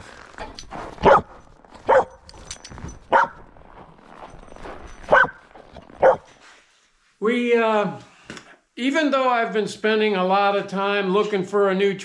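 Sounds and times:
dog barking: 1.0s - 2.2s, 3.1s - 3.4s, 5.1s - 5.4s, 6.0s - 6.3s.

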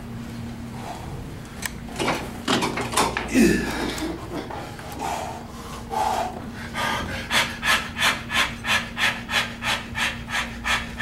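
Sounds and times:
man panting hard: 3.3s - 11.0s.

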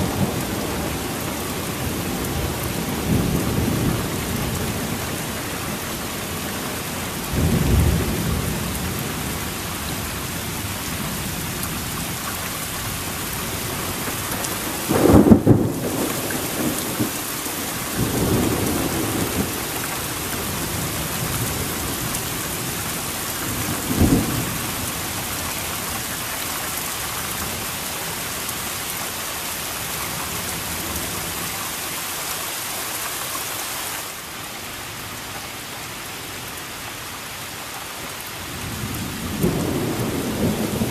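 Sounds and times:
heavy rain hissing: 0.0s - 40.9s
thunder rumbling: 13.5s - 22.8s, 38.6s - 40.9s.

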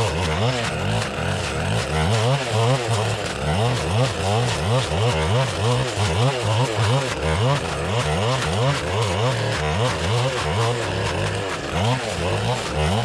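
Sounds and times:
blade cutting through bramble: 0.0s - 13.0s
two-stroke engine running hard: 0.0s - 13.0s.

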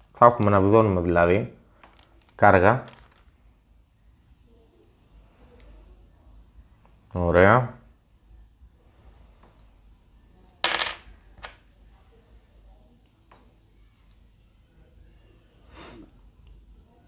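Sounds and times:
light clicks of plastic parts: 1.8s - 3.3s
small hard object clattering: 1.8s - 3.3s.

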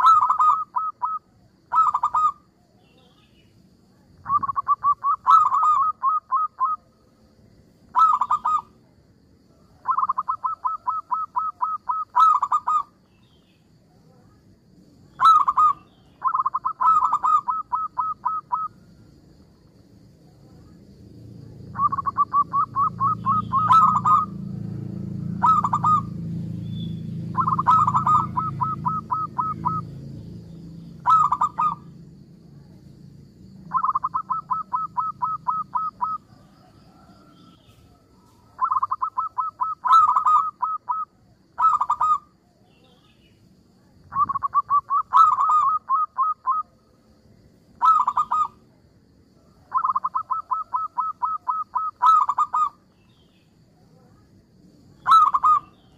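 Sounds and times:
dove calling staccato notes: 0.0s - 2.4s, 4.2s - 6.8s, 7.9s - 8.7s, 9.8s - 13.0s, 15.2s - 18.8s, 21.7s - 30.0s, 30.9s - 31.9s, 33.6s - 36.3s, 38.5s - 42.3s, 44.1s - 46.6s, 47.8s - 48.6s, 49.7s - 52.8s, 55.0s - 55.9s.

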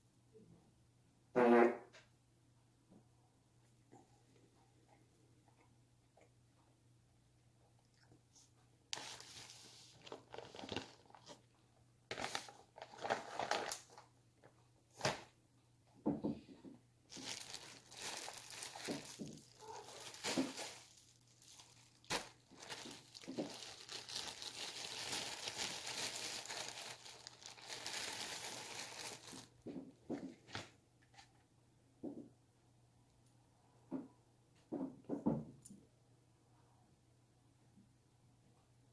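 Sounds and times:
plastic packaging crinkling: 9.0s - 11.4s, 12.1s - 14.1s, 17.1s - 29.6s.

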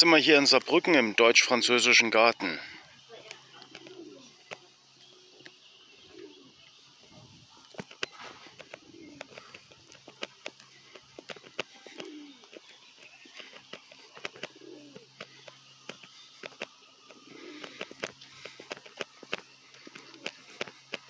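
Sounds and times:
pigeon cooing: 2.4s - 21.0s
sharp irregular clicks: 7.7s - 21.0s.

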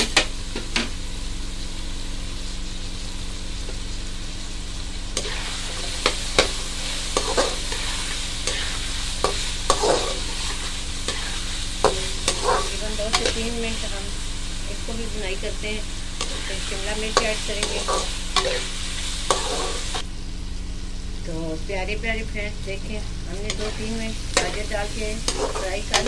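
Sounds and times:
food sizzling in hot oil: 0.0s - 26.0s
spatula scraping a pan: 5.2s - 13.8s, 16.2s - 20.0s, 23.5s - 26.0s.

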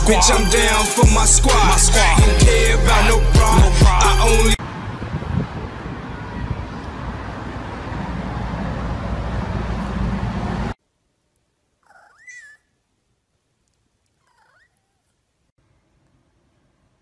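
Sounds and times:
cat meowing: 14.2s - 15.1s.

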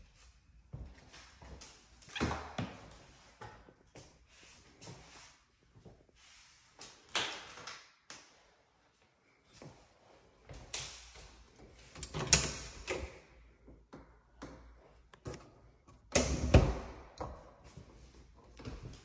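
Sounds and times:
doors opening and closing: 11.8s - 13.4s.

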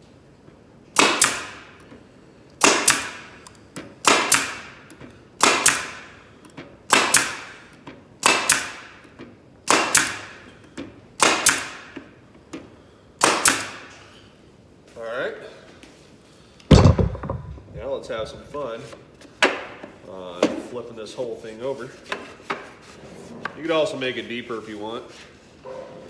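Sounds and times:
pneumatic stapler firing: 1.0s - 1.9s, 2.6s - 6.1s, 6.9s - 9.1s, 9.7s - 10.4s, 11.2s - 12.0s, 13.2s - 14.0s.

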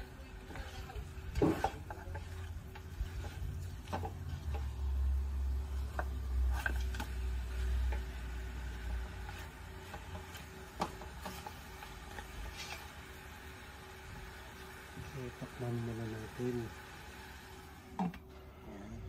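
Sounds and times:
wooden spoon scraping a pot: 0.0s - 14.8s
meat sizzling in a pot: 0.0s - 18.0s.

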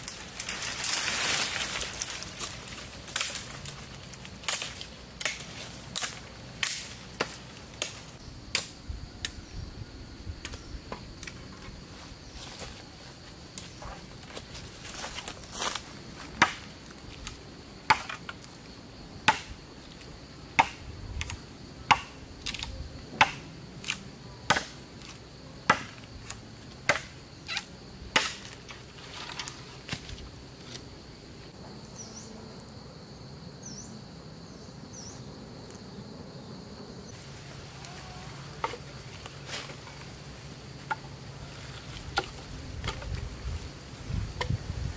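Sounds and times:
insects droning: 0.0s - 44.9s
machete chopping tree trunk: 4.5s - 8.8s, 16.4s - 16.7s, 19.3s - 19.6s, 20.6s - 25.1s, 25.7s - 26.0s, 26.8s - 28.6s
short insect chirps: 33.5s - 36.1s.

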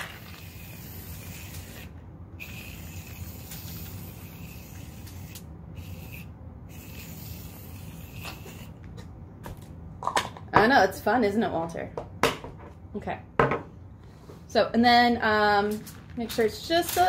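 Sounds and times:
aerosol can spraying foam: 0.2s - 8.8s.

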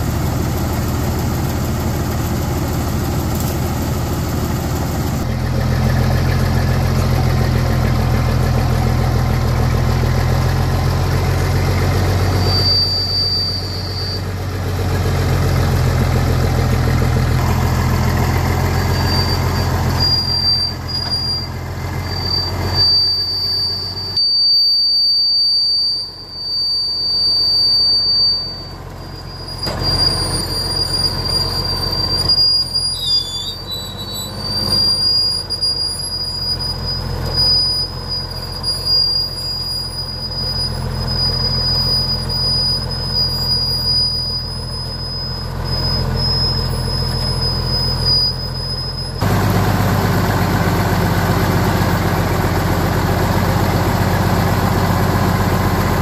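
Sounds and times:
vehicle engine hum: 0.0s - 56.0s
high thin squeal: 4.5s - 56.0s.

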